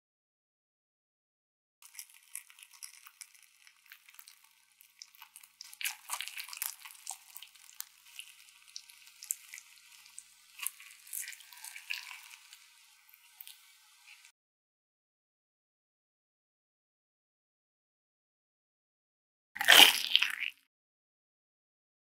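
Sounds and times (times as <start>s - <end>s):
cheesy filling squelching: 1.8s - 14.3s, 19.6s - 20.5s
toasted bread crackling: 1.8s - 14.3s.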